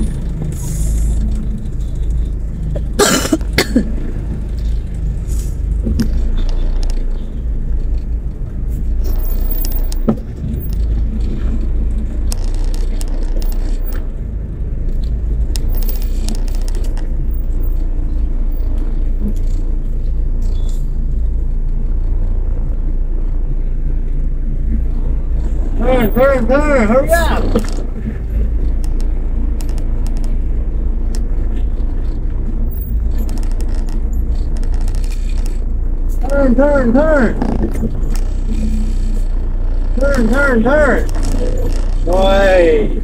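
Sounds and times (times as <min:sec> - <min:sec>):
car cabin rumble: 0:00.0 - 0:43.0.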